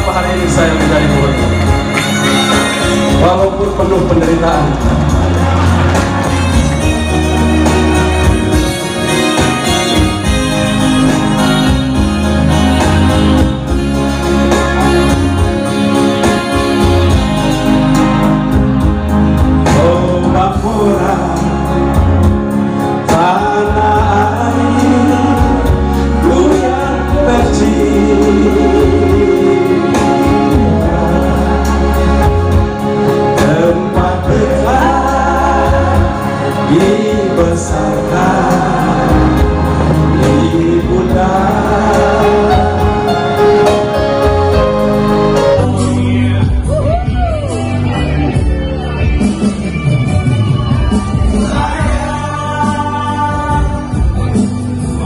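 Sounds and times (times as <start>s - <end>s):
bass line: 0.0s - 55.0s
electronic keyboard chords: 0.0s - 55.0s
person singing: 19.6s - 55.0s.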